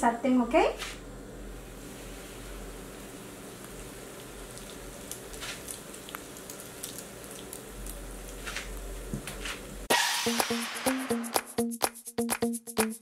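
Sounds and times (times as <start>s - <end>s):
hot oil sizzling in a pan: 1.5s - 9.1s
sharp crackles and pops: 3.4s - 8.9s.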